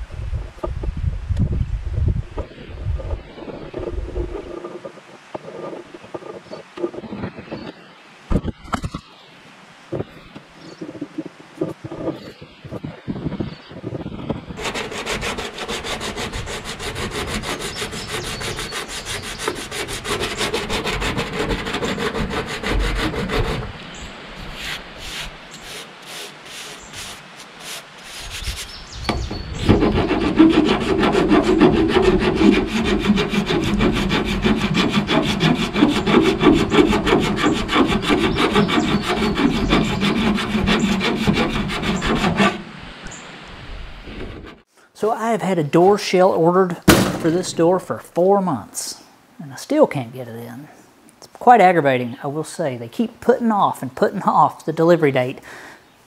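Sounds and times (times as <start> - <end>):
hand tool scraping metal panel: 2.4 - 7.0, 14.6 - 23.8, 24.4 - 43.2.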